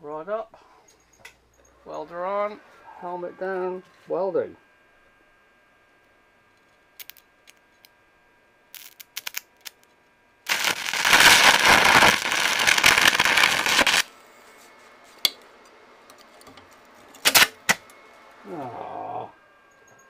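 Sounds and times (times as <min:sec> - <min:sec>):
welding arc burning: 0:07.0 - 0:07.6, 0:08.7 - 0:14.1, 0:17.2 - 0:17.9.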